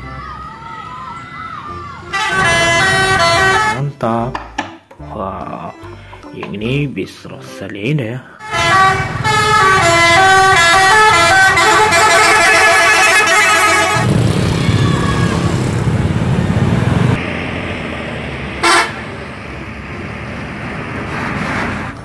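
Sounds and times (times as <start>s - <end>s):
heavy vehicle engine rumble: 0.0s - 3.8s, 8.3s - 22.0s
musical bus horn melody: 1.6s - 4.0s, 5.0s - 6.4s, 8.4s - 14.1s, 18.6s - 19.0s
short horn blast: 2.1s - 4.0s, 8.4s - 14.1s, 18.6s - 19.0s.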